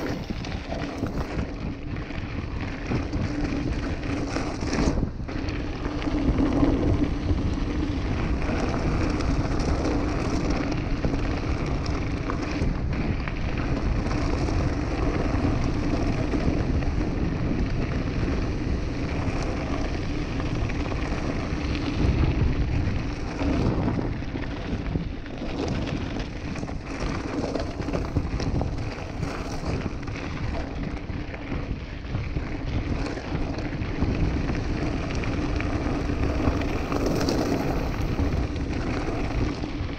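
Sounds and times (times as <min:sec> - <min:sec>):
bike tyres crunching over gravel: 0:00.0 - 0:39.9
wind rushing over microphone: 0:00.0 - 0:39.9.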